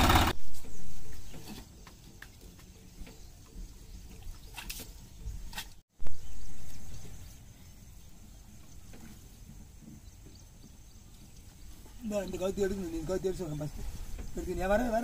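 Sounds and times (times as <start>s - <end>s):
mud and water sloshing: 1.6s - 5.8s.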